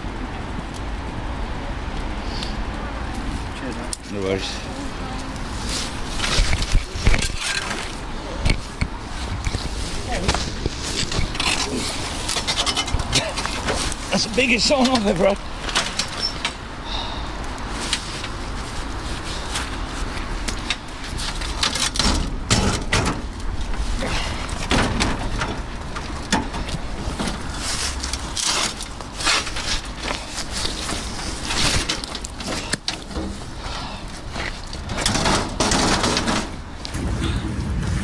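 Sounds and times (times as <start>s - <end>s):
metal frame clanking and scraping: 6.0s - 16.7s, 20.6s - 33.6s, 34.3s - 38.0s.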